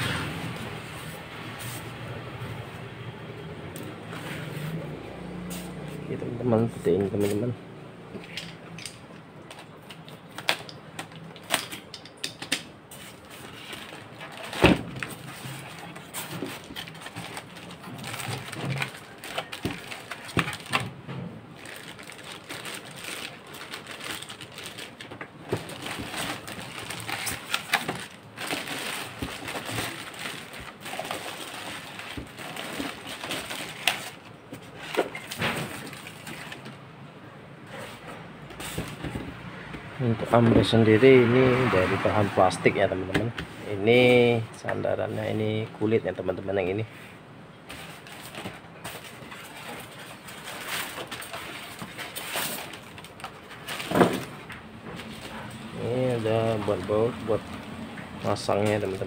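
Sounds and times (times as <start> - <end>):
plastic wrap crinkling: 13.1 - 36.6, 47.8 - 59.0.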